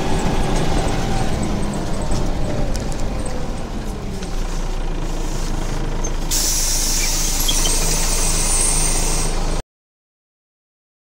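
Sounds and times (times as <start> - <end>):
bus diesel engine running: 0.0 - 9.6
compressed air hissing: 6.3 - 9.5.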